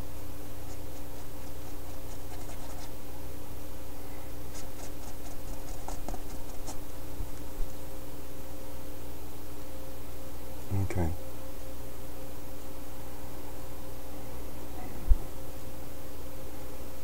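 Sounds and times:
electrical hum: 0.0s - 17.0s
paintbrush scratching on canvas: 0.6s - 3.0s, 4.5s - 6.9s.

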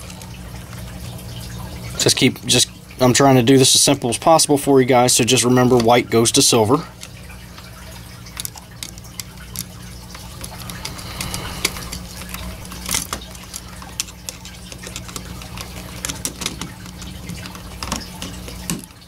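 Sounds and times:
steady low hum: 6.6s - 16.1s.

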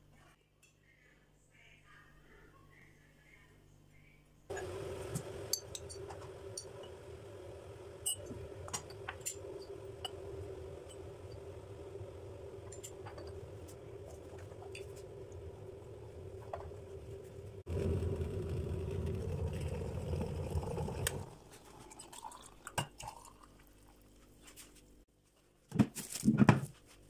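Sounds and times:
china mugs clinking: 4.5s - 16.9s
steady hum: 4.5s - 22.5s.

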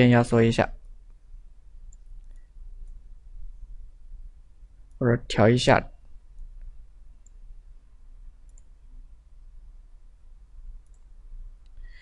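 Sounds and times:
low steady hum: 0.0s - 12.0s
computer mouse clicks: 1.9s - 3.0s, 6.3s - 7.4s, 8.4s - 8.8s, 10.8s - 11.8s.

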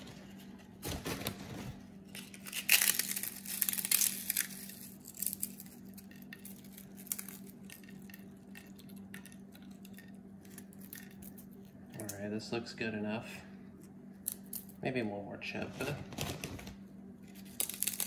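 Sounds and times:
faint steady hum: 0.0s - 18.0s
potato chips crackling: 2.1s - 12.2s, 17.3s - 18.0s.

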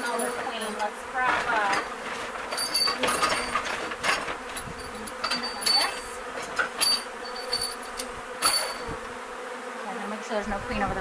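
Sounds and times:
bees buzzing: 0.0s - 11.0s
sharp clicks and knocks: 0.4s - 9.0s.

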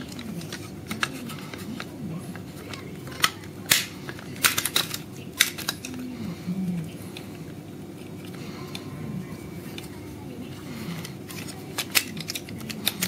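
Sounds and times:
small metal parts clicking: 2.6s - 6.0s, 11.3s - 13.0s.

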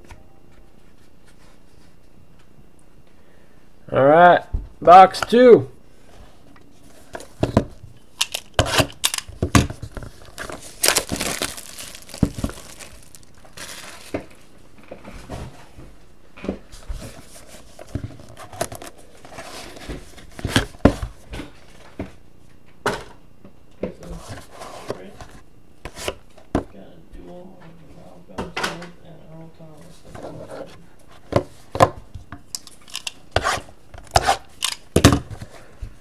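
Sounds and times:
plastic shrink-wrap crinkling and tearing: 10.1s - 14.4s.

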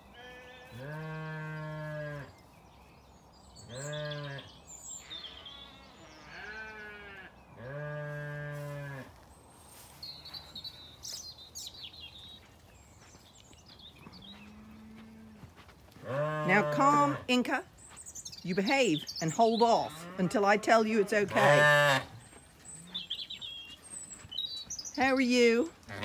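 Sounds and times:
sheep bleating: 0.1s - 2.2s, 21.2s - 22.1s.

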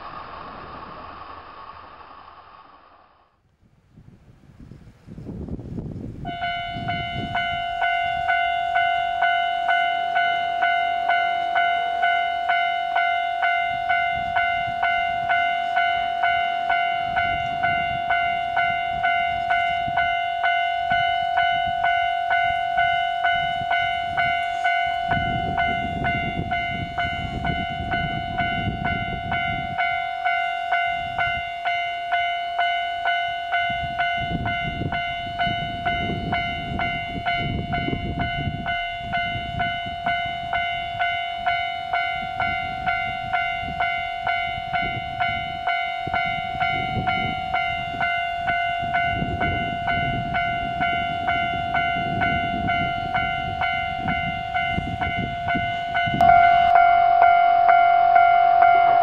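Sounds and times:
low train rumble: 0.0s - 59.0s
level-crossing warning bell: 6.2s - 59.0s.

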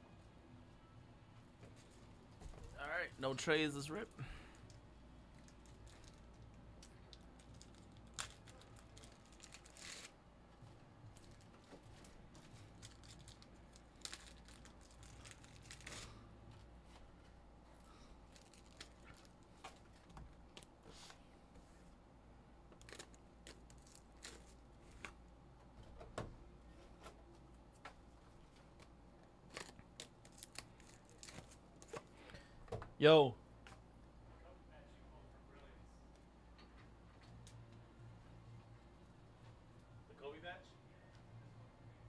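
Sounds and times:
card packs tearing: 7.4s - 10.1s, 12.6s - 16.2s, 29.5s - 32.0s.

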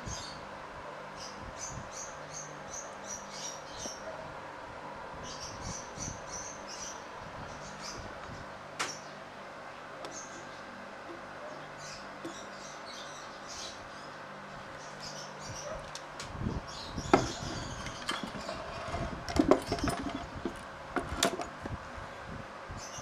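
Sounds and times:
steady low hum: 0.0s - 23.0s
metal parts clicking on wood: 17.2s - 21.5s.

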